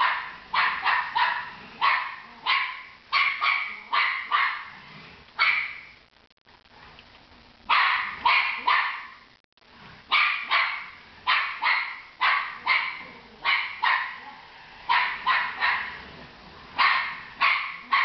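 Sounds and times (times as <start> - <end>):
dog barking: 0.0 - 4.8, 5.4 - 5.9, 7.7 - 9.2, 10.1 - 16.0, 16.8 - 18.0.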